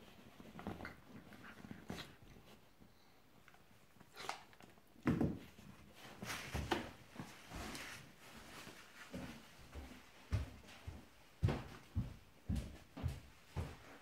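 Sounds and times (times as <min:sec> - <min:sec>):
scuffling on sofa: 0:06.0 - 0:10.0.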